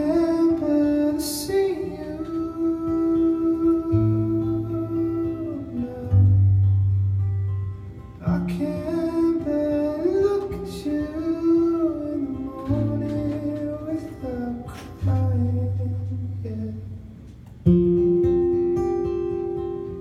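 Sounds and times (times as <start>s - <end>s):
man singing: 0.0s - 6.6s, 8.2s - 17.1s
acoustic guitar strumming: 0.0s - 20.0s.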